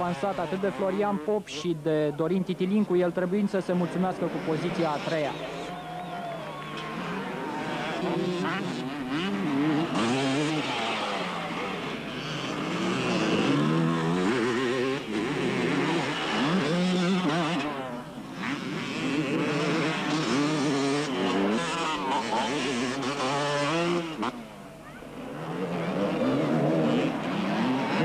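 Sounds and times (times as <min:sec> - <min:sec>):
motocross bike engines revving: 0:00.0 - 0:28.0.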